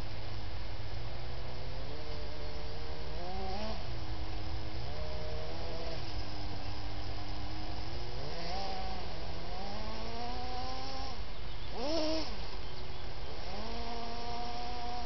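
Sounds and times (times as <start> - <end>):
electric motor whining: 1.5 - 4.0, 7.7 - 12.4, 13.3 - 15.0.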